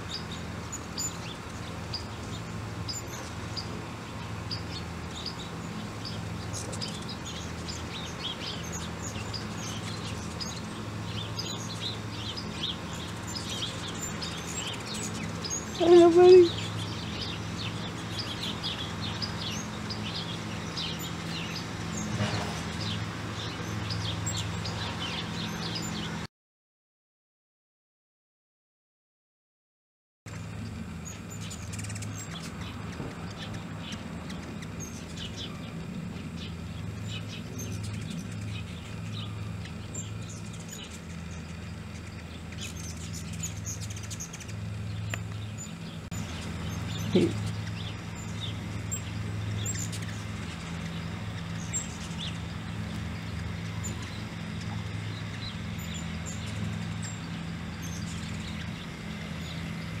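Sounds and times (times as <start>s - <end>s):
hummingbirds chirping: 0.0s - 26.3s, 30.3s - 60.0s
steady low hum: 0.0s - 26.3s, 30.3s - 60.0s.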